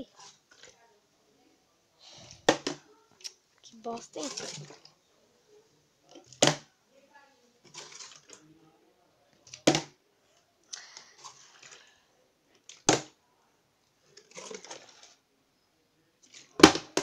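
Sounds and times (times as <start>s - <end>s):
plastic bottle knocking on tile floor: 2.4s - 2.8s, 6.4s - 6.7s, 16.6s - 17.0s
plastic bottle rustling: 3.8s - 4.9s, 7.6s - 8.4s, 14.1s - 15.2s.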